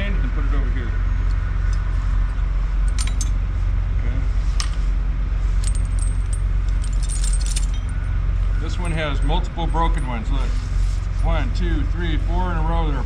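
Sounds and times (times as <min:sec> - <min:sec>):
steady low rumble: 0:00.0 - 0:13.0
chain links clinking: 0:02.8 - 0:03.4, 0:04.6 - 0:04.9, 0:05.6 - 0:08.1.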